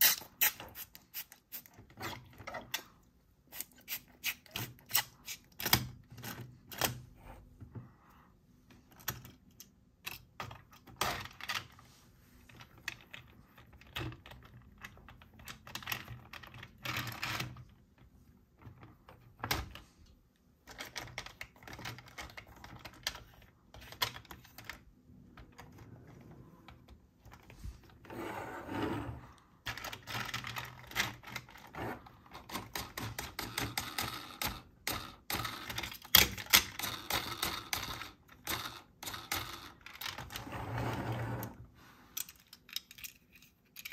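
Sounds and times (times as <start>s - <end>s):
plastic toy parts clicking: 42.2s - 43.9s.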